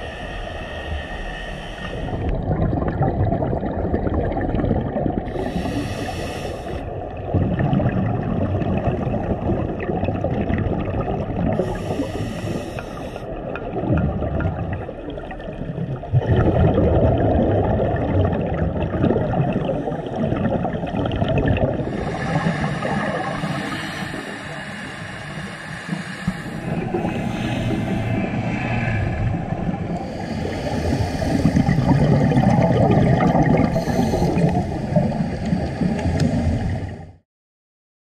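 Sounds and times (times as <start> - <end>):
muffled underwater rush: 0.0 - 37.2
water gurgling: 1.8 - 37.2.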